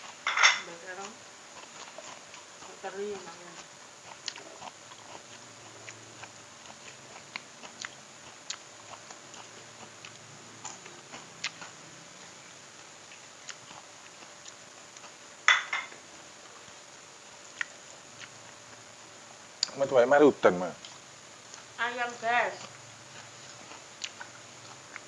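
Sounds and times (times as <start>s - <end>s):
close chewing: 0.9s - 15.2s, 17.4s - 18.8s, 20.8s - 25.0s.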